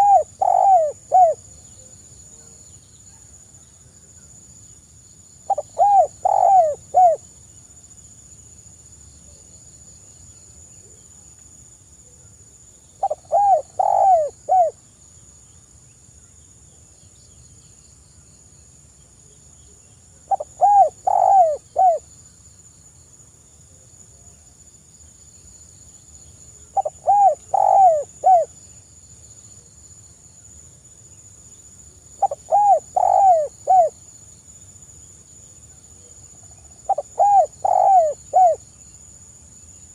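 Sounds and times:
dove cooing: 0.0 - 1.5, 5.5 - 7.2, 13.0 - 14.8, 20.3 - 22.0, 26.7 - 28.5, 32.2 - 34.0, 36.9 - 38.6.

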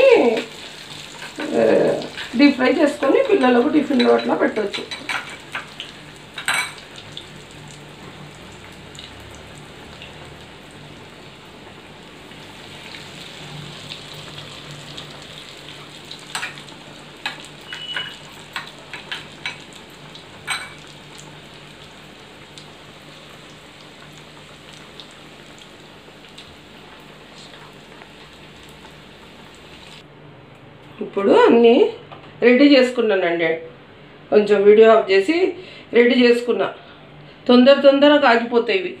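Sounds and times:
food deep-frying in oil: 0.0 - 30.1.

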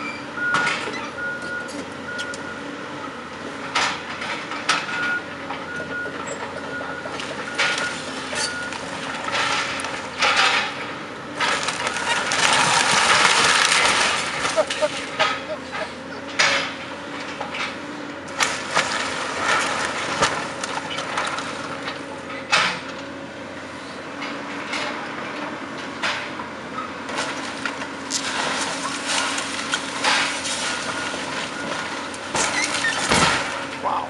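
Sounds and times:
excavator diesel engine: 0.0 - 34.0
timber cracking and splintering: 11.4 - 15.4, 27.1 - 33.8
debris crashing down: 11.4 - 15.5.

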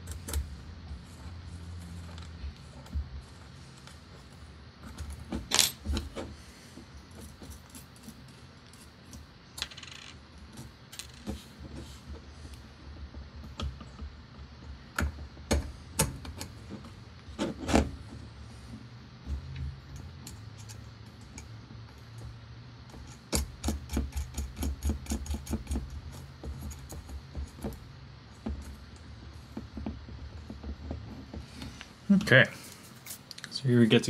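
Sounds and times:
small screws clicking and clinking: 7.1 - 11.4.

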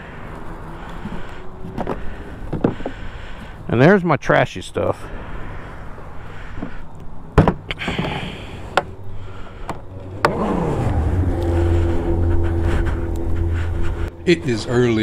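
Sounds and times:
engine starting and idling: 9.9 - 12.9.

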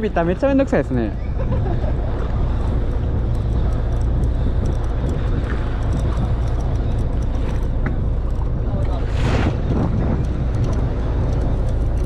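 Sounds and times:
small boat rumble: 0.0 - 12.0
wind on open sea: 0.0 - 12.0
faint ticks: 3.0 - 9.0, 9.9 - 12.0.

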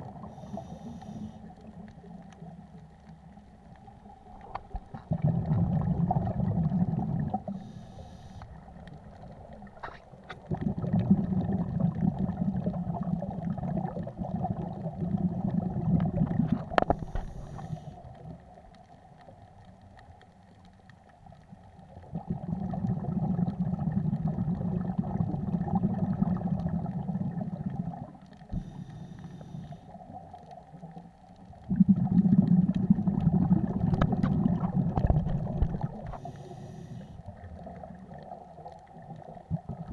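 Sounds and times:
underwater exhaled air bubbling: 0.0 - 39.9.

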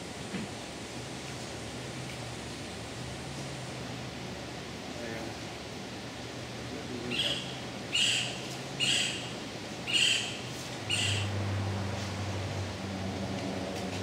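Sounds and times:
short high bird calls: 7.1 - 9.3, 9.9 - 11.3.

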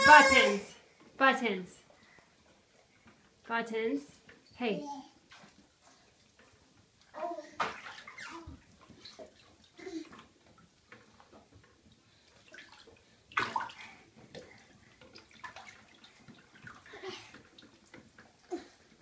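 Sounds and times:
bathwater splashing: 4.2 - 19.0.

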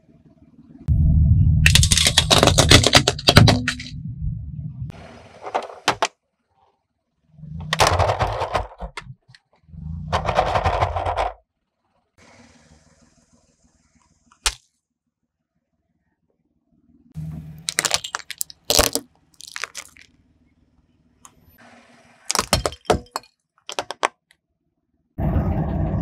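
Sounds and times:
tyre low rumble: 0.9 - 4.9
plastic toys cracking: 1.7 - 3.9, 17.6 - 20.1, 22.3 - 24.2.

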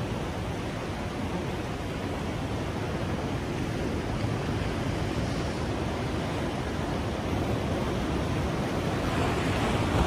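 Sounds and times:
ocean surf breaking on rocks: 0.0 - 10.0
wind on microphone: 0.0 - 10.0.

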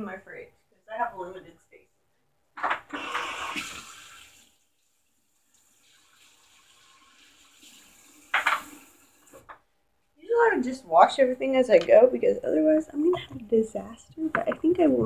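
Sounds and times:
kitchen tap running: 2.7 - 9.6.

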